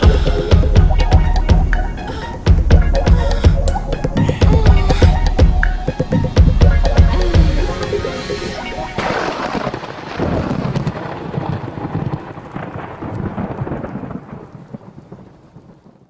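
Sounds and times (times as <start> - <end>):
music: 0.0 - 9.0
rain: 0.0 - 16.0
rolling thunder: 8.6 - 16.0.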